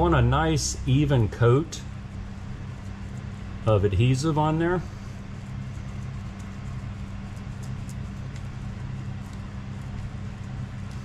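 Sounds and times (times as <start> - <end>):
low machine hum: 0.0 - 11.0
paintbrush scratchy ticks: 2.2 - 4.4, 5.4 - 11.0.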